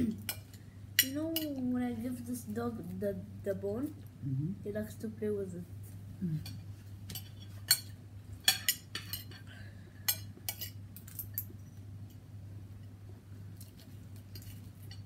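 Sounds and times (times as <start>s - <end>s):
low steady hum: 0.0s - 15.0s
cutlery clinking on a plate: 6.5s - 9.5s, 10.1s - 11.5s, 13.7s - 15.0s.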